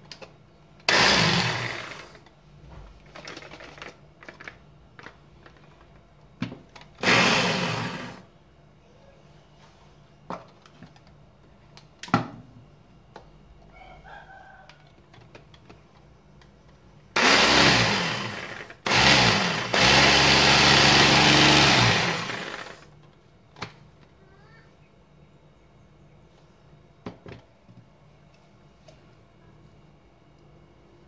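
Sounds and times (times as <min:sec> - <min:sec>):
hand blender motor whirring: 0:00.9 - 0:02.2, 0:07.0 - 0:08.2, 0:17.2 - 0:22.8.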